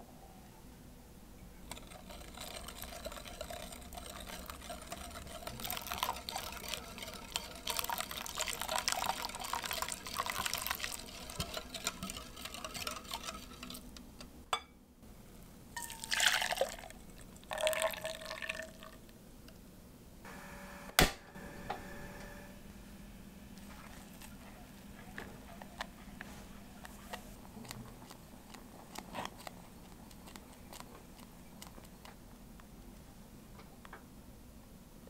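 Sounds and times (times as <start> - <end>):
mixture poured into pot: 1.7 - 13.9, 15.8 - 19.0
whisk clicking against glass bowl: 1.7 - 14.0
liquid splashing: 1.8 - 13.8.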